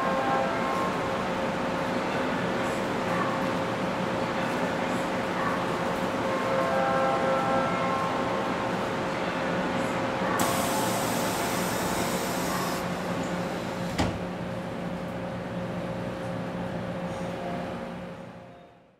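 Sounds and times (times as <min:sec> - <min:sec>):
train electrical hum: 0:06.0 - 0:18.9
sliding doors closing with hiss: 0:10.4 - 0:12.9.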